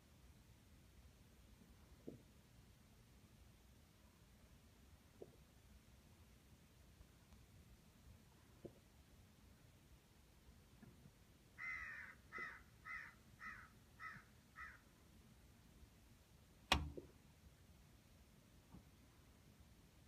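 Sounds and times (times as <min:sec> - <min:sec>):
crow cawing: 0:11.6 - 0:14.8
sharp click: 0:16.7 - 0:17.1.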